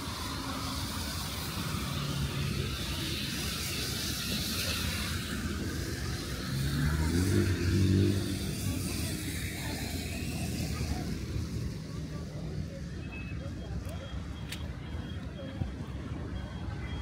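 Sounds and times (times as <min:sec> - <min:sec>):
car engine passing: 0:04.7 - 0:11.9.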